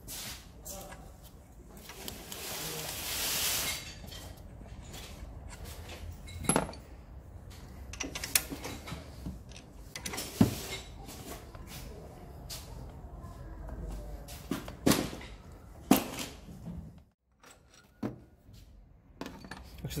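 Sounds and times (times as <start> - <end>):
tools clinking and knocking: 3.8 - 11.1, 17.3 - 18.4, 19.2 - 19.9.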